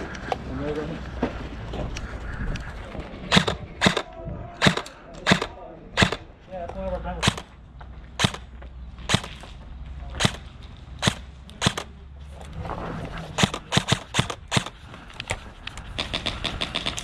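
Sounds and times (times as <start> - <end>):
airsoft guns firing: 3.3 - 6.3, 7.2 - 7.5, 8.2 - 8.5, 9.1 - 9.4, 10.2 - 12.0, 13.4 - 14.8, 16.0 - 17.0.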